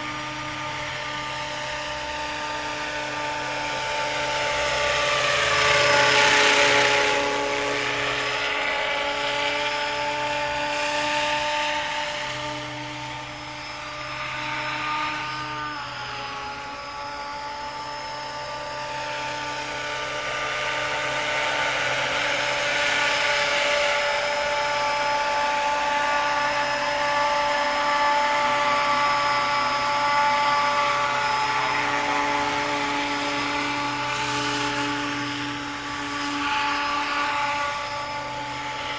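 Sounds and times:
model helicopter rotor whine: 0.0s - 38.9s.

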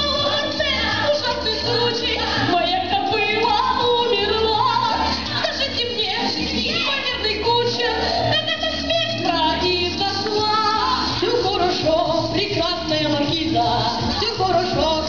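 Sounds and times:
children singing into microphones: 0.0s - 5.4s.

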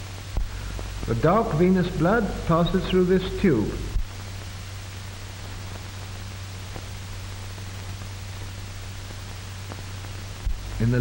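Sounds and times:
film soundtrack hiss and hum: 0.0s - 11.0s.

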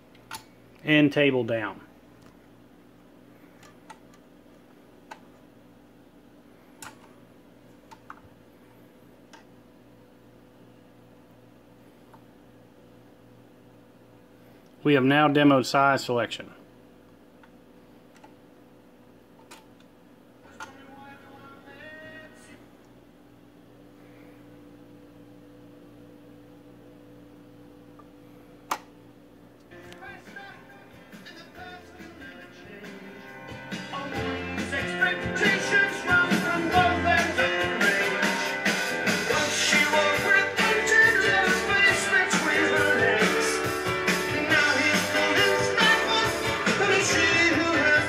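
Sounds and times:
steady low hum: 0.0s - 48.0s
music from record: 20.4s - 22.6s, 29.7s - 48.0s.

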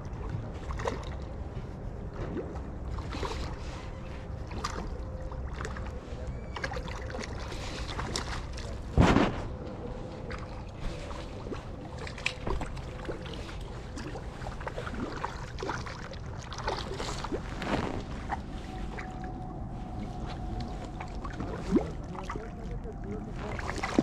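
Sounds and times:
water noise: 0.0s - 24.0s
wind: 0.0s - 24.0s
knocks or splashes: 6.6s - 9.6s.

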